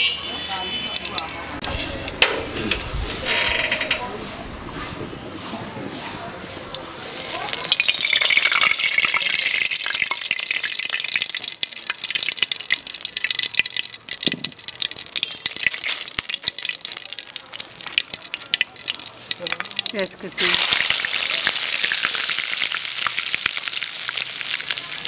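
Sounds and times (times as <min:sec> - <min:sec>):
oil sizzling in a wok: 0:06.4 - 0:25.0.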